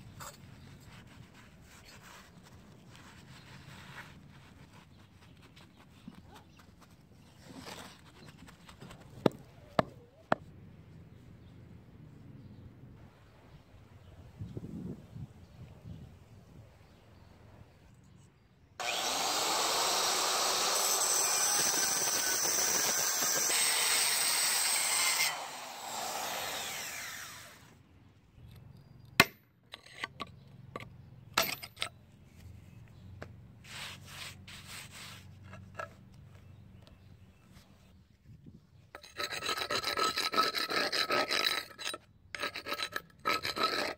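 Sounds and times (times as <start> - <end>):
angle grinder cutting concrete: 18.8 - 27.6.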